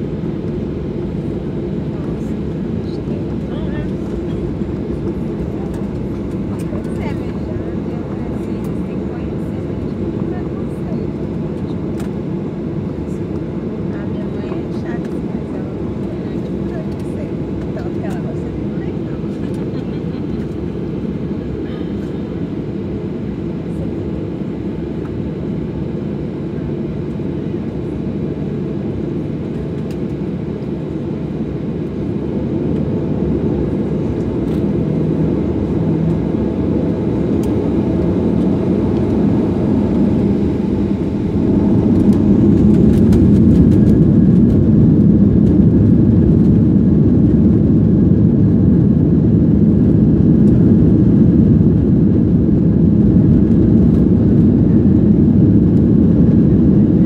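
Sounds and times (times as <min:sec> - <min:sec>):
jet engine cabin rumble: 0:00.0 - 0:57.0.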